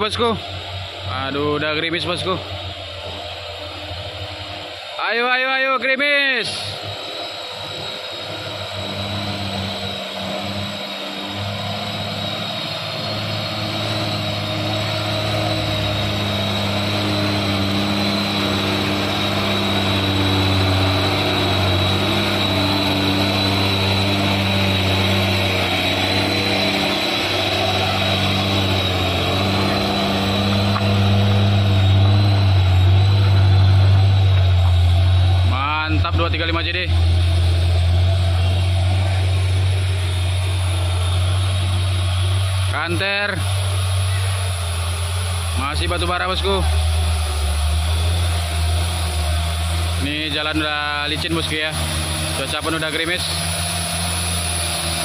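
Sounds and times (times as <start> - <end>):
diesel truck engine under load: 0.0 - 55.0
steady high whistle: 6.0 - 55.0.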